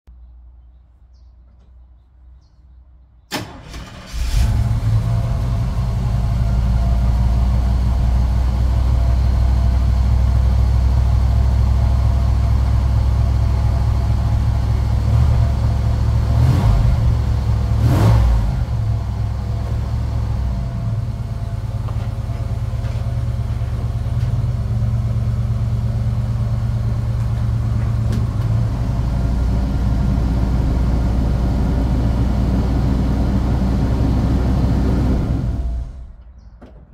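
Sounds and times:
pickup engine cranking and idling: 3.3s - 36.9s
engine revving blips: 14.2s - 22.2s.

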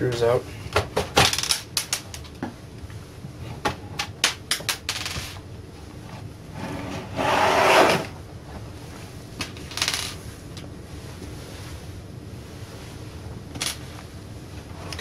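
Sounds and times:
plastic scraping across desk: 6.5s - 8.2s.

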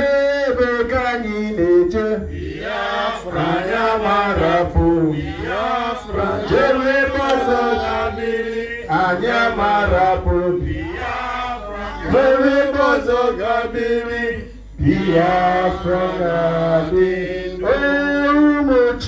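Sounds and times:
chanted singing: 2.5s - 10.0s.

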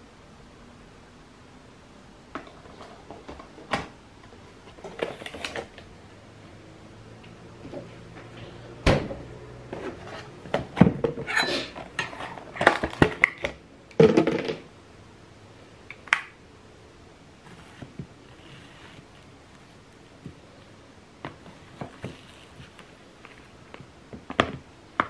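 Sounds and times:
plastic tubs and lids handled: 2.4s - 5.9s, 9.7s - 14.7s.

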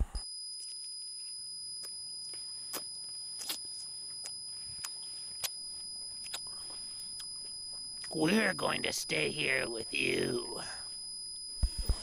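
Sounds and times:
steady high-pitched tone: 0.0s - 12.0s
mouth clicks: 6.2s - 6.5s.

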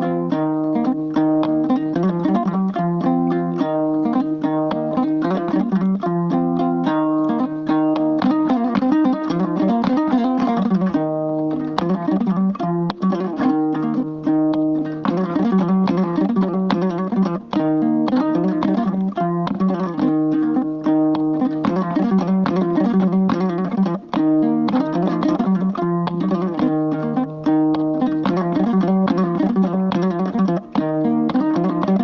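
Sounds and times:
plucked lute melody: 0.0s - 32.0s.

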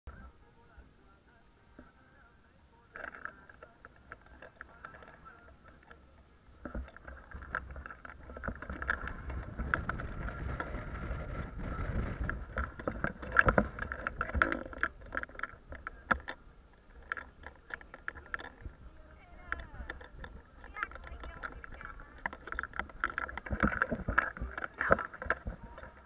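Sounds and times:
clicks and rattles: 2.9s - 26.0s
road rumble: 5.4s - 26.0s.

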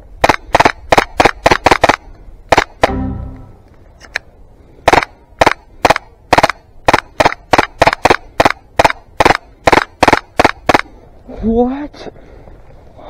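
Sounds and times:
airsoft pistol shots: 0.2s - 3.0s, 4.8s - 10.9s.

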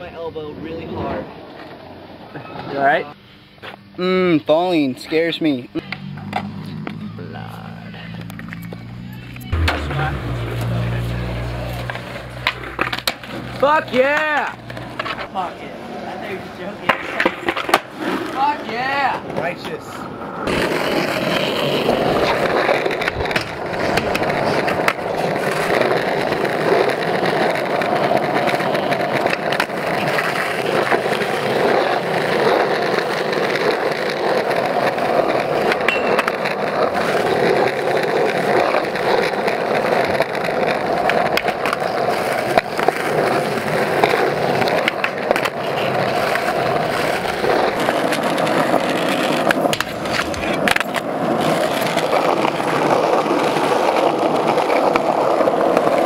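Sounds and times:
skateboard wheels rolling on asphalt: 0.0s - 56.0s
skateboard clacks: 11.5s - 15.4s, 16.6s - 18.6s, 20.4s - 56.0s.

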